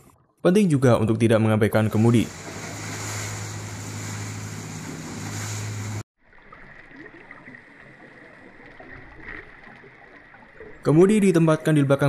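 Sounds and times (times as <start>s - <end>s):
ship propeller churning water: 1.8s - 10.9s.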